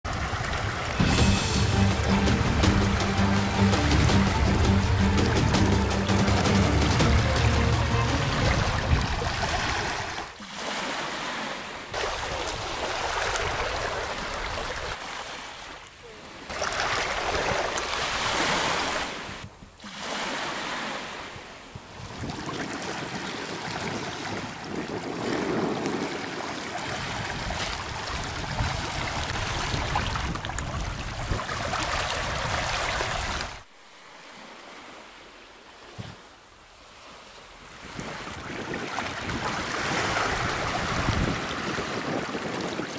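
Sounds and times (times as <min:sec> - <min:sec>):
small waves lapping: 0:00.1 - 0:42.9
wind rumbling on microphone: 0:08.2 - 0:10.3, 0:21.4 - 0:33.6, 0:37.6 - 0:42.9.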